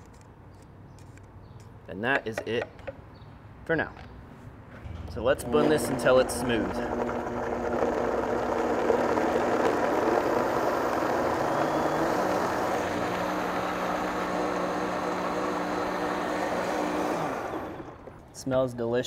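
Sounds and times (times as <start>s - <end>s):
blender motor running: 5.4s - 18.2s.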